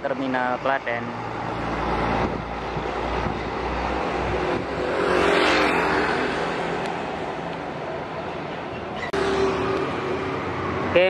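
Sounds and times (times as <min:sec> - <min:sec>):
motor scooter passing: 0:04.1 - 0:07.4.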